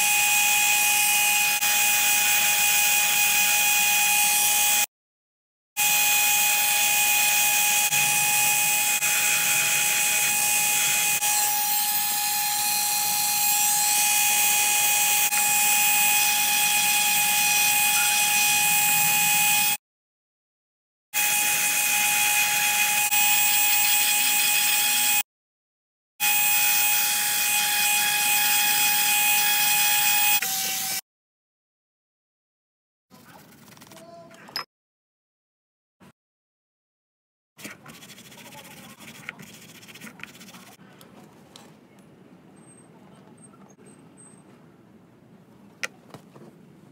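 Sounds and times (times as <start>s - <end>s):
rotary tool whining: 5.8s - 19.8s.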